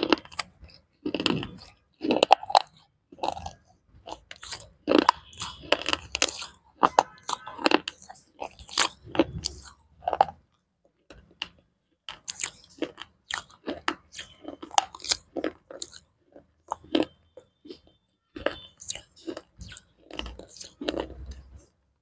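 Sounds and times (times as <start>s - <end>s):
gritty crunching of chewing: 0.0s - 21.7s.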